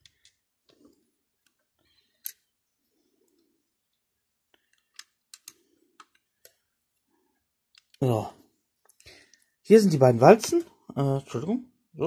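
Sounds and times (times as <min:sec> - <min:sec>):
plastic bricks clicking together: 0:04.6 - 0:06.6.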